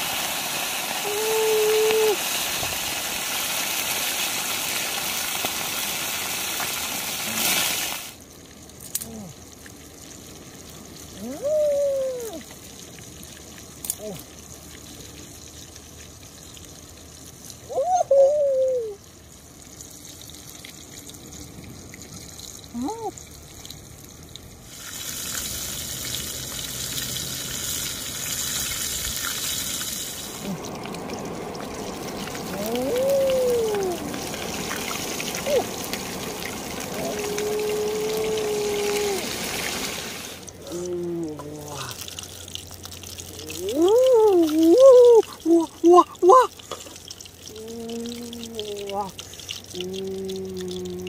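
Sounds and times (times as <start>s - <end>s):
fish sizzling in hot oil: 0.0s - 8.8s, 24.1s - 33.3s, 34.0s - 40.5s
whistle-like calls: 17.7s - 19.0s.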